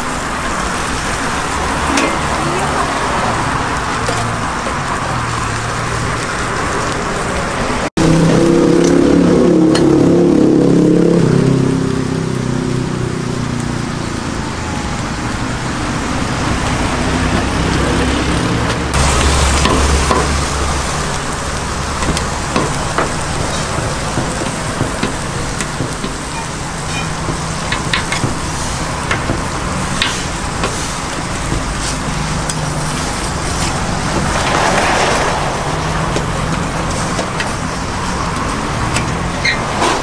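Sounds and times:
meat sizzling on a griddle: 0.0 - 7.4, 19.0 - 39.2
cleaver scraping on griddle: 19.0 - 40.0.

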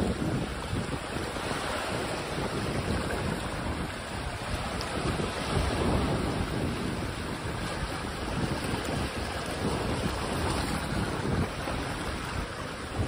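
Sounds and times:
small waves breaking on rocks: 0.0 - 13.0
wind buffeting microphone: 0.0 - 13.0.

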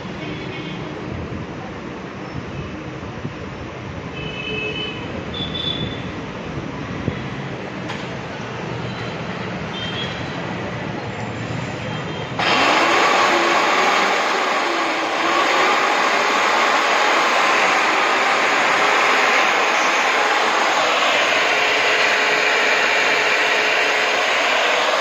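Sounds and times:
electric core drill motor whine: 12.4 - 25.0.

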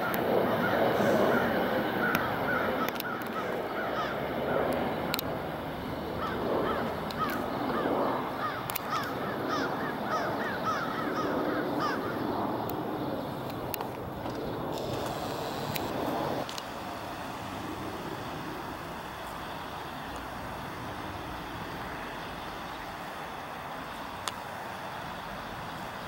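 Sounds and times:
crows cawing: 0.0 - 4.3, 6.2 - 12.3
steady low rumble: 11.0 - 26.0.

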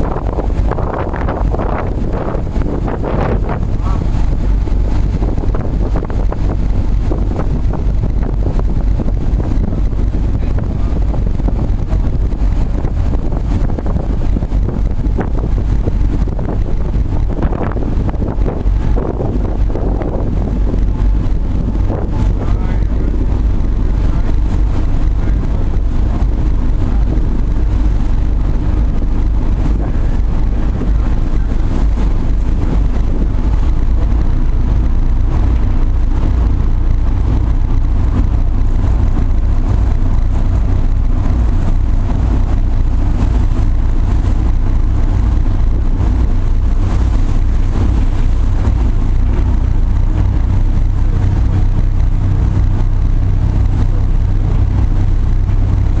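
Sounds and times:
diesel engines humming: 0.0 - 56.0
wind and water noise: 0.0 - 56.0.

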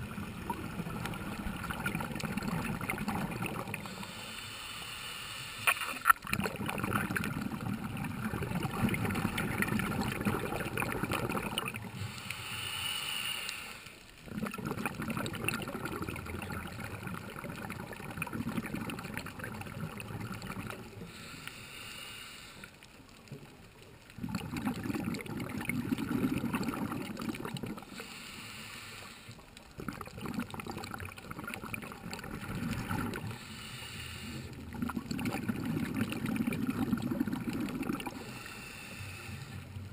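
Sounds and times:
diver exhaling bubbles: 0.0 - 4.0, 5.7 - 12.1, 14.2 - 21.2, 24.2 - 28.0, 29.7 - 33.5, 34.3 - 38.4
hissing regulator inhalations: 3.8 - 5.9, 11.9 - 14.1, 21.0 - 23.0, 27.8 - 29.6, 33.2 - 34.7, 38.0 - 39.8.

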